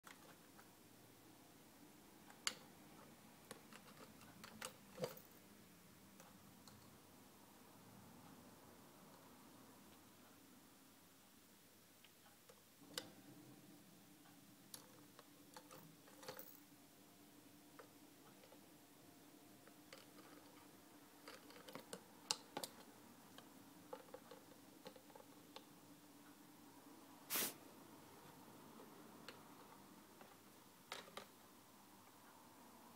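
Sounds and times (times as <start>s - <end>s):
short loud rustle: 27.3s - 27.6s.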